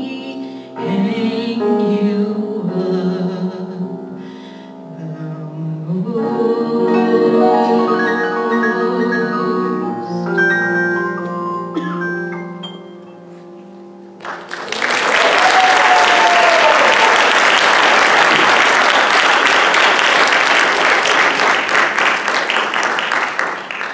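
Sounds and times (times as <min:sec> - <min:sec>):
audience applause: 0:14.2 - 0:23.9
drawn-out cheer: 0:14.7 - 0:18.7.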